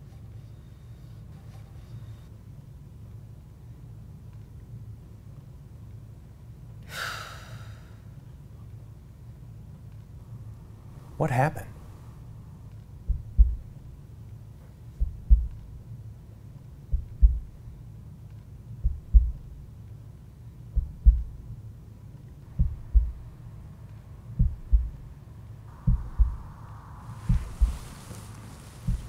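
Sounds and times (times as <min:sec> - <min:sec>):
low hum: 0:08.0 - 0:29.0
heartbeat double thumps: 0:13.0 - 0:14.0, 0:14.9 - 0:15.8, 0:16.8 - 0:17.8, 0:18.8 - 0:19.7, 0:20.7 - 0:21.6, 0:22.4 - 0:23.4, 0:24.3 - 0:29.0.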